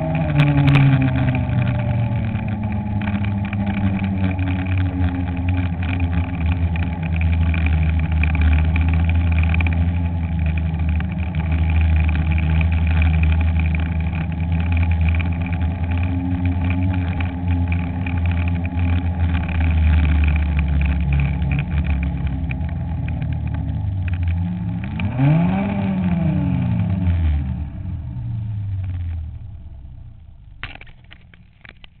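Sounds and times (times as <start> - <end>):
snowmobile engine running hard: 0.0 - 29.6.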